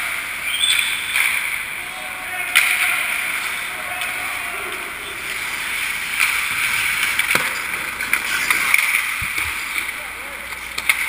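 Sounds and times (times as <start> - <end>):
skate blades scraping ice: 5.1 - 11.0.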